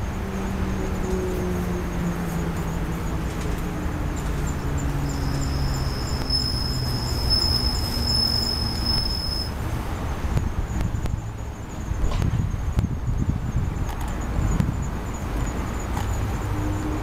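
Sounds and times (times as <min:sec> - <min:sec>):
vehicle engine passing: 0:00.0 - 0:12.7
high-pitched insect trill: 0:00.0 - 0:17.0
insects chirping: 0:00.0 - 0:17.0
low traffic rumble: 0:00.0 - 0:17.0.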